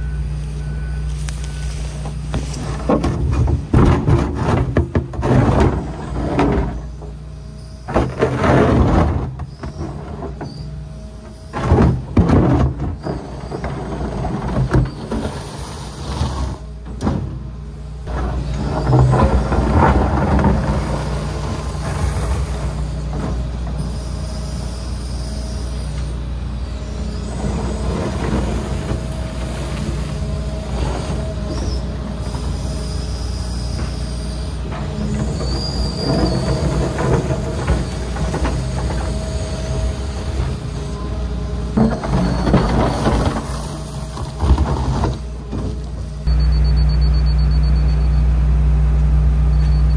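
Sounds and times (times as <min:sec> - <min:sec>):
diesel engine running under load: 0:00.0 - 0:49.9
bucket scraping dirt: 0:01.1 - 0:17.3, 0:18.0 - 0:24.3, 0:26.9 - 0:46.3
bucket scraping and knocking: 0:02.3 - 0:07.0, 0:07.9 - 0:10.6, 0:18.1 - 0:23.4, 0:41.8 - 0:45.8.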